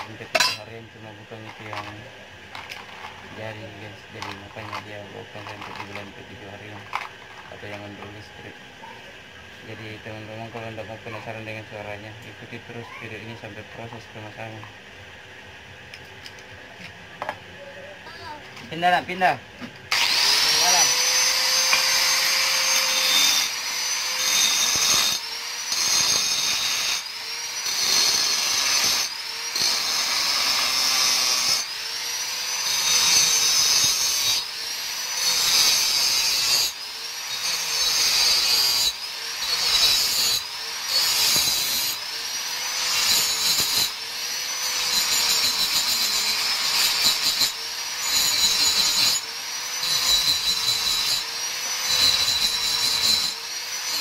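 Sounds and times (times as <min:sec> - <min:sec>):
angle grinder grinding metal: 0:00.0 - 0:08.5, 0:18.1 - 0:54.0.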